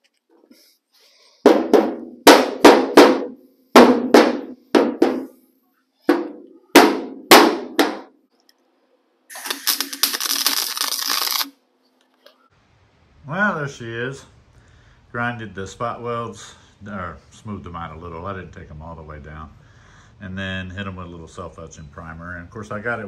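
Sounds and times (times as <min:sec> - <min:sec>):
hammer striking sheet metal: 0:01.5 - 0:05.4, 0:06.1 - 0:08.1
welder crackling: 0:09.3 - 0:11.6.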